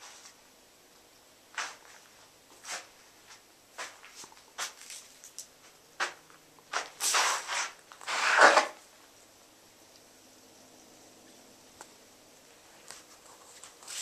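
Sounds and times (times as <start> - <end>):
feet scraping: 1.5 - 8.8, 12.8 - 14.0
footsteps on dirt and leaves: 1.6 - 8.7.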